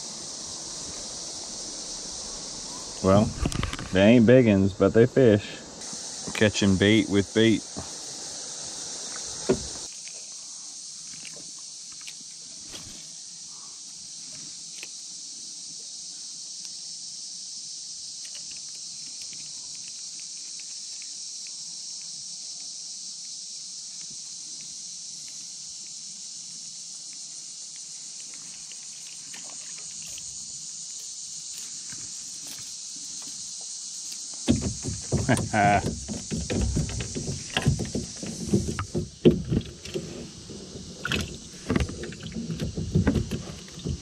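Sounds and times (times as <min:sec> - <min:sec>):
insects droning: 0:00.0 - 0:44.0.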